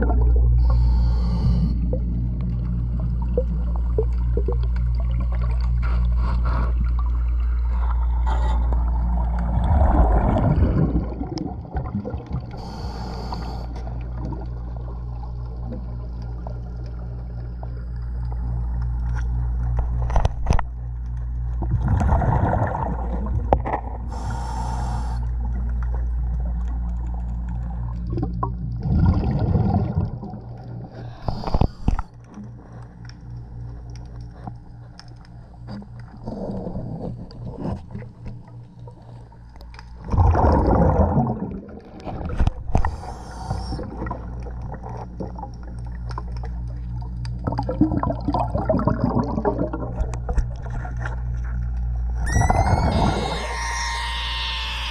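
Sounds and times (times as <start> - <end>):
exhaled bubbles underwater: 0.0 - 34.8, 35.4 - 54.9
steady low hum: 0.0 - 54.9
regulator inhalation hiss: 0.6 - 1.7, 12.6 - 13.8, 24.1 - 25.3, 42.8 - 43.8.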